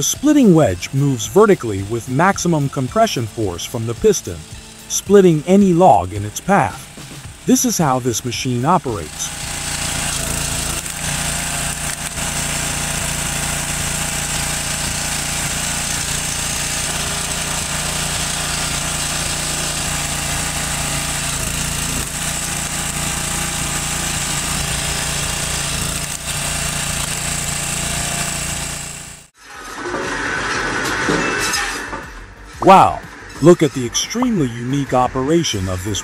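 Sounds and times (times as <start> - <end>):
small petrol engine running: 0.0 - 29.3.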